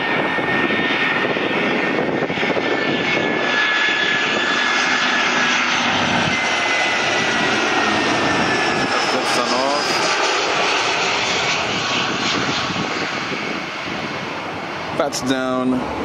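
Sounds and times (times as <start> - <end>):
jet engines rushing rumble: 0.0 - 16.0.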